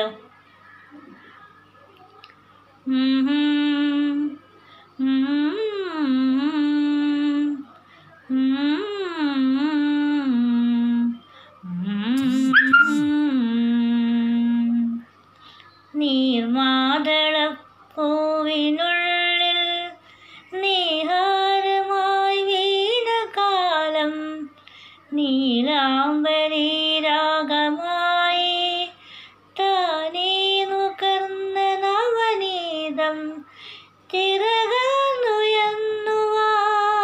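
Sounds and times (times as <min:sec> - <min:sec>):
woman singing unaccompanied: 0:02.8 - 0:15.1, 0:15.9 - 0:37.0
singer breathing: 0:20.0 - 0:20.5, 0:29.0 - 0:29.5, 0:33.5 - 0:34.0.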